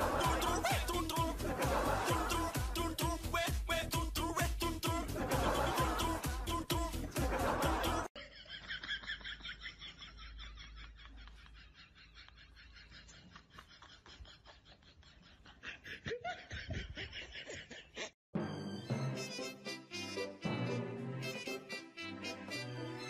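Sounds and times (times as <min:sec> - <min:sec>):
person laughing: 0:00.0 - 0:02.9, 0:05.0 - 0:18.2.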